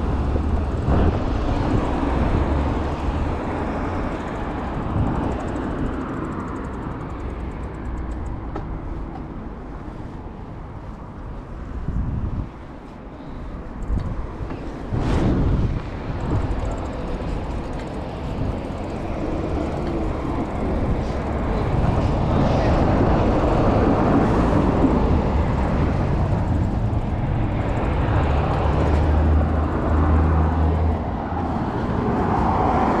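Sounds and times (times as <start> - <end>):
city traffic: 0.0 - 33.0
low engine hum: 0.0 - 33.0
wind rumble on microphone: 0.0 - 33.0
bicycle freewheel ticking: 4.1 - 8.4, 16.1 - 21.6.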